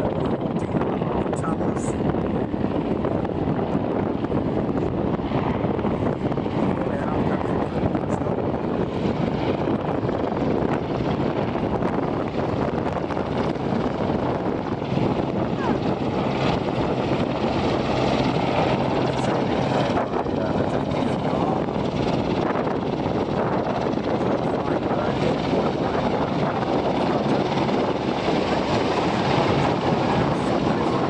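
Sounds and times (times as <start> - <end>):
helicopter flying low past: 0.0 - 31.0.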